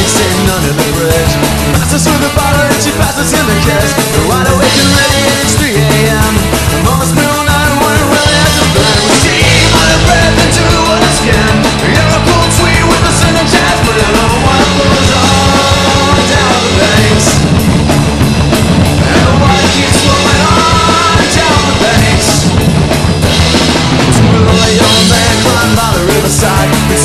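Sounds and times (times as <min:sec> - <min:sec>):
punk rock band playing: 0:00.0 - 0:27.0.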